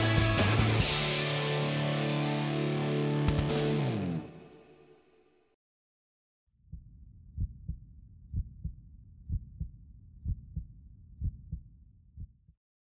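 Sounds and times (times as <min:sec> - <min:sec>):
heartbeat double thump: 0:06.7 - 0:12.6.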